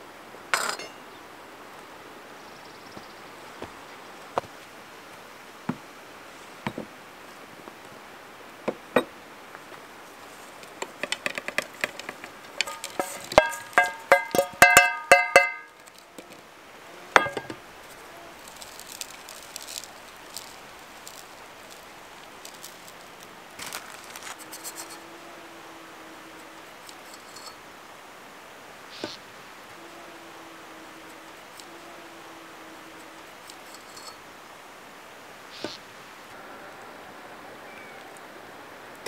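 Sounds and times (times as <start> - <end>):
ringing knocks: 0.5 - 1.0, 11.0 - 15.8, 17.2 - 17.6
wooden spoon scraping frying pan: 10.3 - 15.4.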